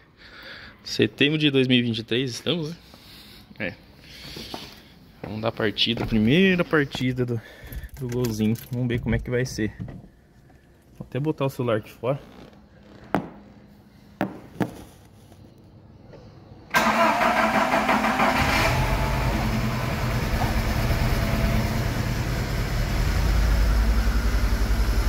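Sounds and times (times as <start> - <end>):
engine cranking and idling: 16.7 - 25.0.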